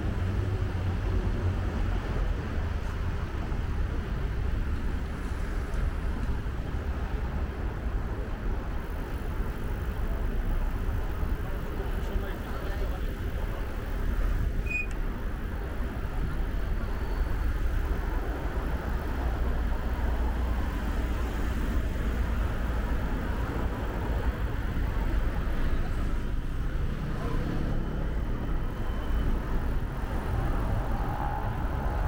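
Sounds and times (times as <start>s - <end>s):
heavy low traffic rumble: 0.0s - 32.0s
cars passing: 15.1s - 32.0s.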